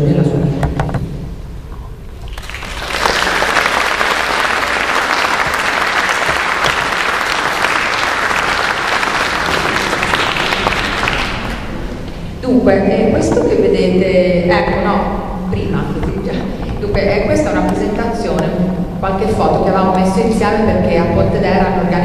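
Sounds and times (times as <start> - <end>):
audience applauding: 2.2 - 12.2.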